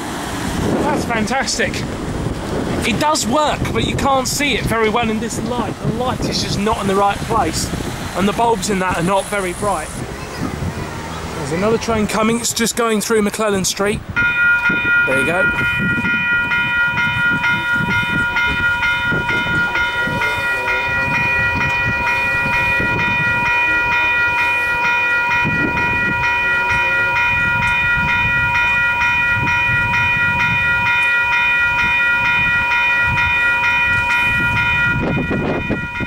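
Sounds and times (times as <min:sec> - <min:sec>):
level crossing warning bells: 0:11.0 - 0:36.0.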